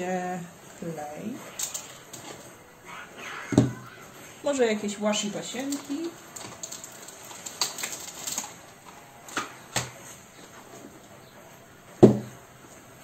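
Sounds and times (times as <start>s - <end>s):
paper and small objects handled: 5.5s - 10.6s.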